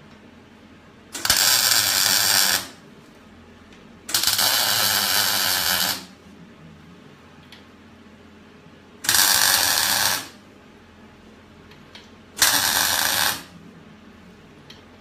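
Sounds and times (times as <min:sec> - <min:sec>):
welder crackling: 0:01.1 - 0:02.8, 0:04.1 - 0:06.2, 0:09.0 - 0:10.4, 0:12.4 - 0:13.5.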